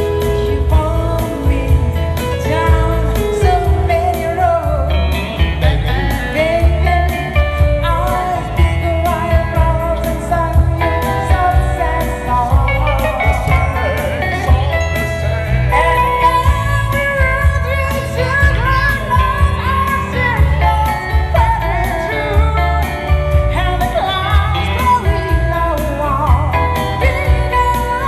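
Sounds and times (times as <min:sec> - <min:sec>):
electronic keyboard: 0:00.0 - 0:28.0
man and woman singing duet: 0:00.0 - 0:28.0
pulsing bass beat: 0:00.0 - 0:28.0.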